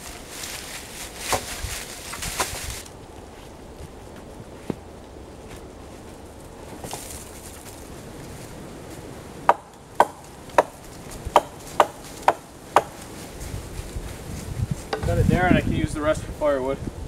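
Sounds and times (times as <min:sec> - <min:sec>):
axe chopping wood: 0:01.2 - 0:01.5, 0:09.4 - 0:13.0.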